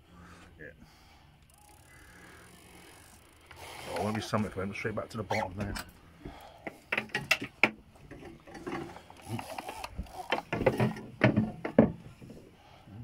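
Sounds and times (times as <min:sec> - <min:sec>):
fishing reel ratchet clicking: 0:01.4 - 0:04.3, 0:09.2 - 0:10.5.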